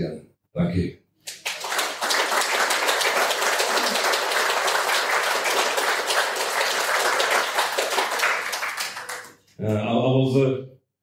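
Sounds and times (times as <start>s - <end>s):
audience applauding: 1.3s - 9.4s.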